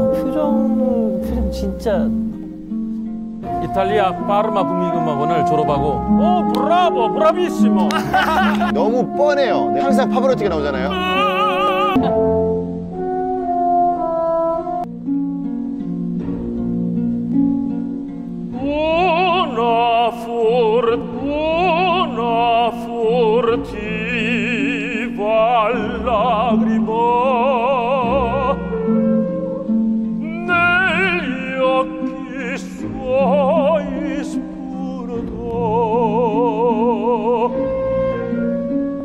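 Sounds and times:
instrumental accompaniment: 0.0s - 39.0s
man singing opera: 3.4s - 12.3s, 18.6s - 29.3s, 30.2s - 39.0s.

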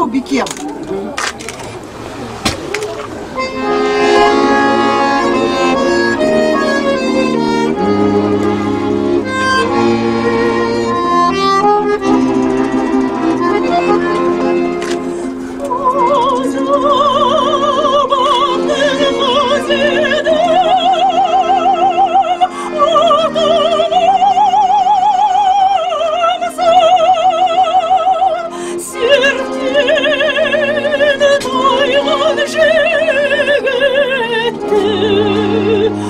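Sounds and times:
accordion chords: 2.9s - 36.0s
woman singing with vibrato: 3.5s - 8.8s, 15.6s - 36.0s.

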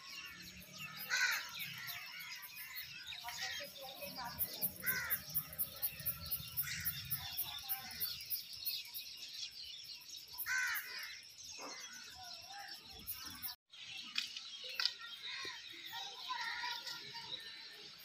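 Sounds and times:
loud arched bird call: 0.0s - 2.8s
birds chirping: 0.0s - 18.0s.

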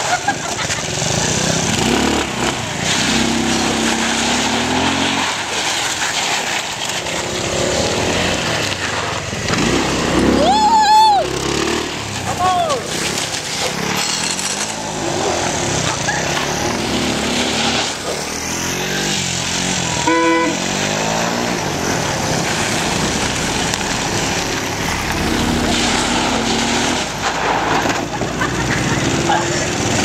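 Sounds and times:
motor scooter engine revving: 0.0s - 30.0s
tyre skidding on gravel: 0.0s - 30.0s
short horn toot: 20.0s - 20.7s.

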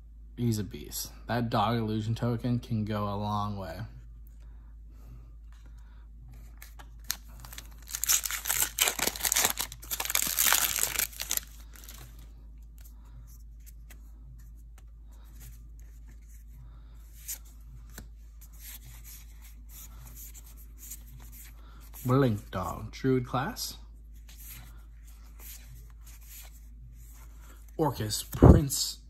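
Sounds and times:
cards being handled: 6.4s - 22.1s, 24.2s - 28.6s
foil wrapper crackling: 7.1s - 12.2s.

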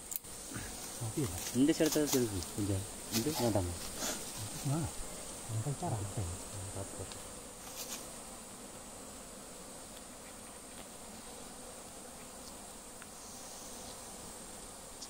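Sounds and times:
bees buzzing: 0.0s - 15.0s
faint ticks: 12.2s - 13.2s.

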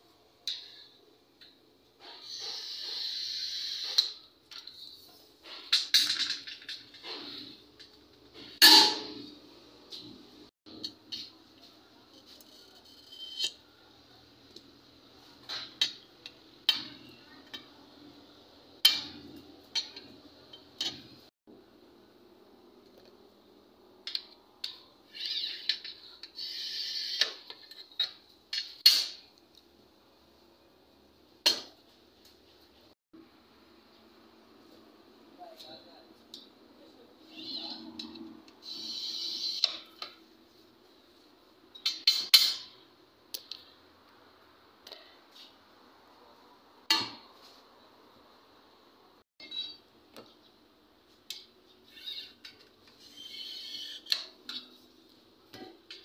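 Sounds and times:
glass cutter scoring glass: 52.0s - 54.4s.

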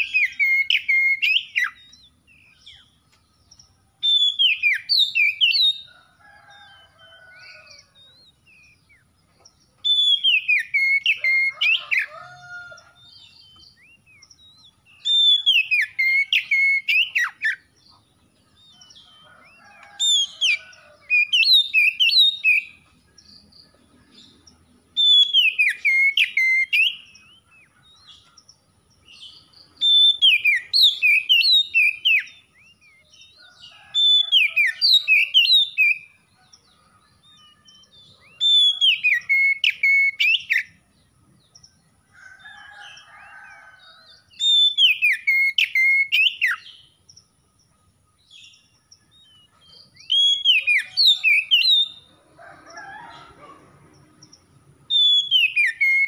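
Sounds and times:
bird singing whistled phrases: 0.0s - 2.1s, 4.1s - 5.8s, 9.9s - 11.5s, 13.8s - 17.6s, 25.0s - 27.4s, 29.9s - 33.0s, 38.2s - 40.7s, 44.4s - 46.6s, 49.3s - 52.0s, 54.9s - 56.0s.

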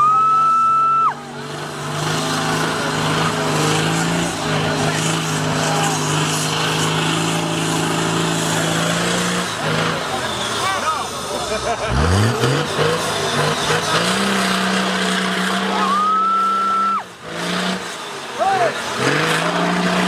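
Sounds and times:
off-road vehicle engine running: 0.0s - 20.0s.

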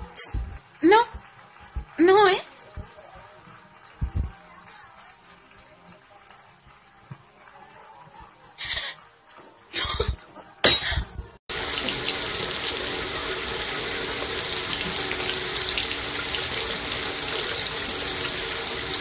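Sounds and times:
tap water splashing into sink: 11.5s - 19.0s.

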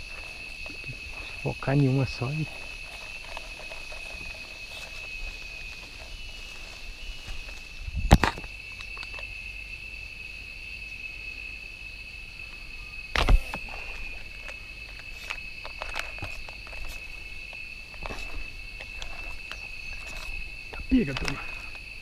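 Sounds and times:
faint clicks and rustles: 0.0s - 9.3s, 13.2s - 21.9s
insects droning: 0.0s - 22.0s.

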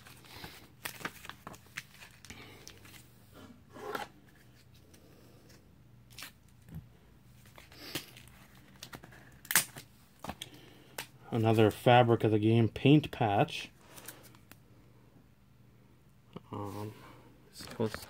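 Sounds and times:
cards and packaging rustling: 0.0s - 11.7s, 13.8s - 14.6s.

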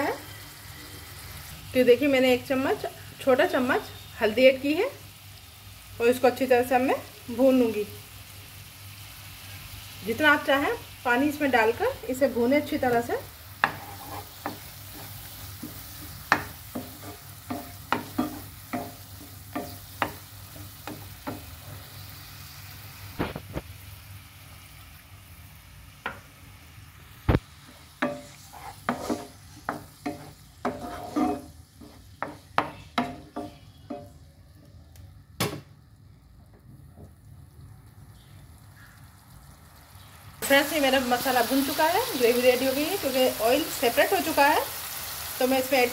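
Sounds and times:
onion and tomato sizzling in oil: 0.0s - 45.9s
spatula knocking and scraping pan: 13.6s - 21.9s, 27.6s - 34.2s.

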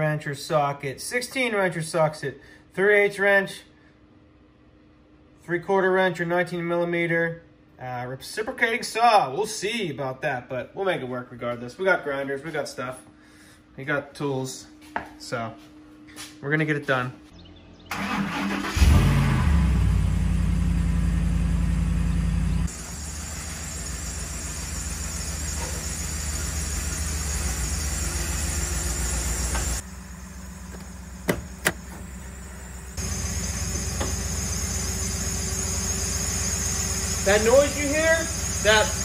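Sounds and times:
truck engine starting and idling: 17.8s - 39.0s
high-pitched engine whine: 19.7s - 39.0s.

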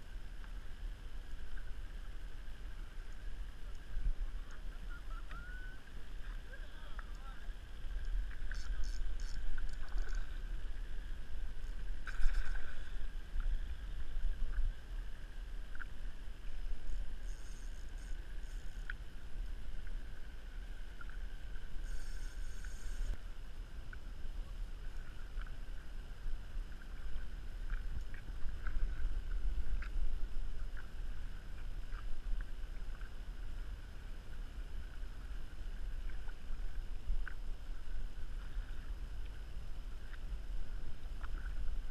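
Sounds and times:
water lapping against kayak hull: 0.4s - 23.2s
small clicks: 8.0s - 10.3s
short hissing bursts: 21.8s - 23.2s.

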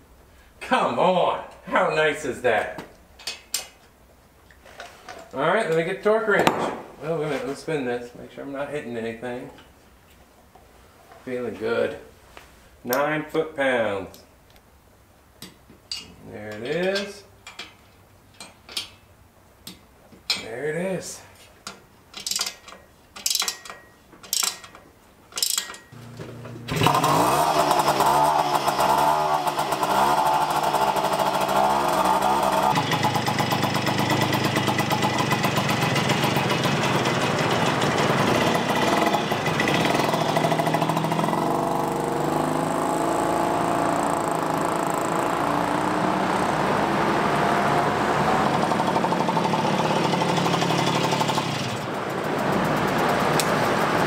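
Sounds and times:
two-stroke moped engine running: 26.0s - 54.0s.

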